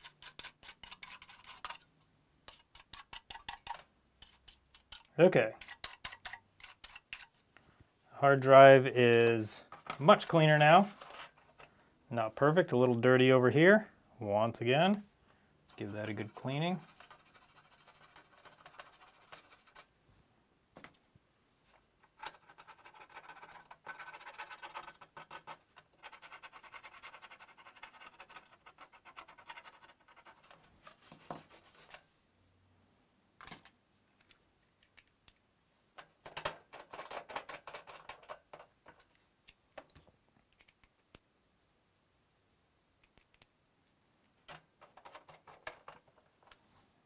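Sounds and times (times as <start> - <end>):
sharp clicks and taps: 36.0 - 41.3, 43.0 - 43.6.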